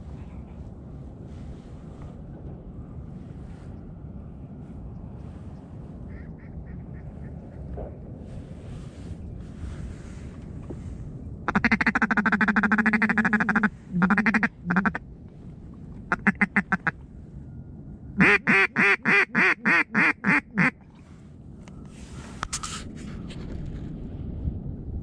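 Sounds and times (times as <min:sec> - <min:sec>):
duck call quacks: 0:11.5 - 0:15.0, 0:16.1 - 0:16.9, 0:18.2 - 0:20.8
duck call rattling chatter: 0:11.5 - 0:15.0, 0:18.2 - 0:20.7.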